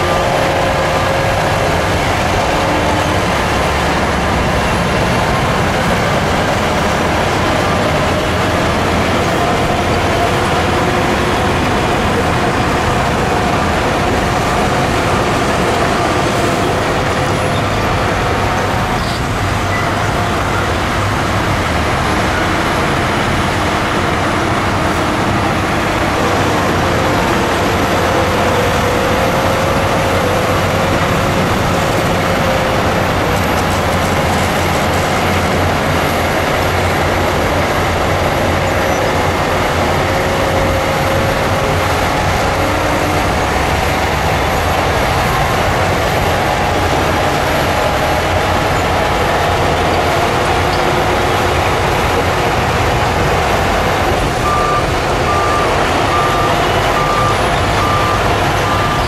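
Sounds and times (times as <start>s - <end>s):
diesel construction machinery running: 0.0s - 59.0s
reversing alarm beeping: 53.8s - 59.0s.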